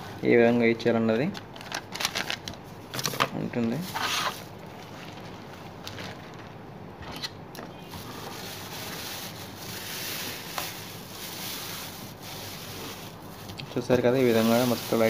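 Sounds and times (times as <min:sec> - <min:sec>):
plastic bag crinkling: 0:01.5 - 0:06.6, 0:07.9 - 0:15.0.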